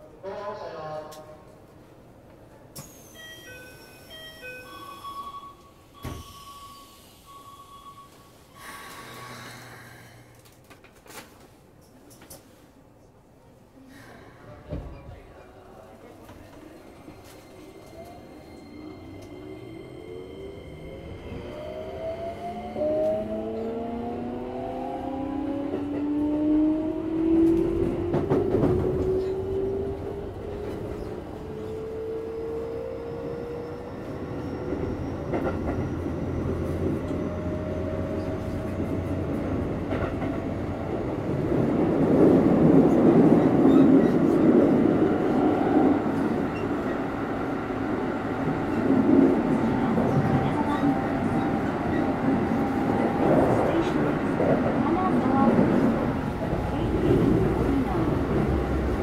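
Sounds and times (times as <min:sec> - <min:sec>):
long steady beeps: 0:03.0 - 0:09.0.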